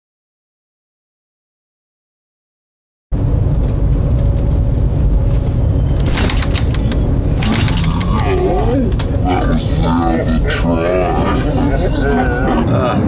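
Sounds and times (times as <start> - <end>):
train cabin low rumble: 3.2 - 13.0.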